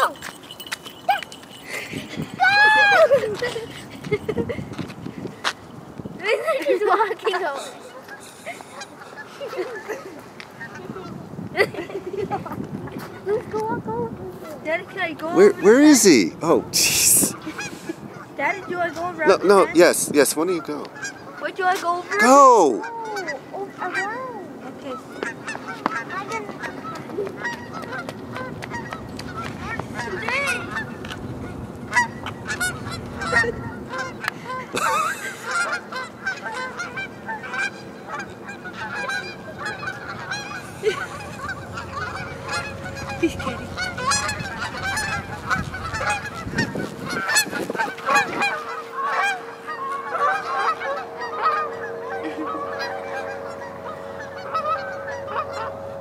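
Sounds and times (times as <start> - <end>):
geese honking: 7.0 - 11.2, 14.4 - 56.0
steady low hum: 22.8 - 56.0.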